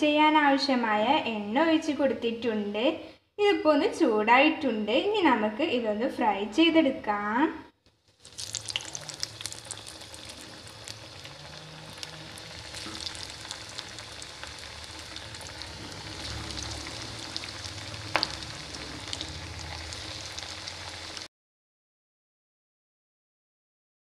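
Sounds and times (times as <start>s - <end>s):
cutlets sizzling in hot oil: 8.0s - 21.3s.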